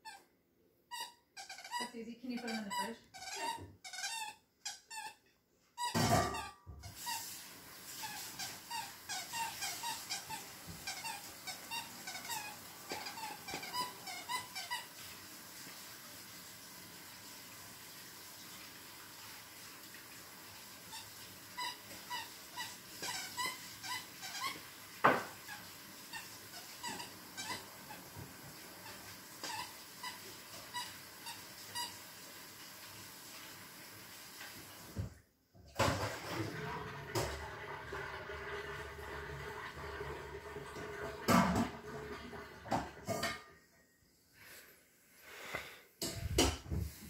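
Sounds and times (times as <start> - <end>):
squeaky toy squeaking: 0.0 - 0.3, 0.9 - 7.2, 8.0 - 14.9, 21.6 - 24.6, 25.4 - 28.0.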